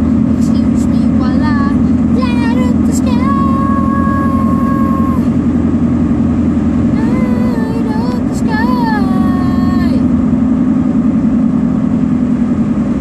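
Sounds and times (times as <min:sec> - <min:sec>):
car engine and road drone: 0:00.0 - 0:13.0
voice holding a long note: 0:01.8 - 0:05.3, 0:07.0 - 0:10.1.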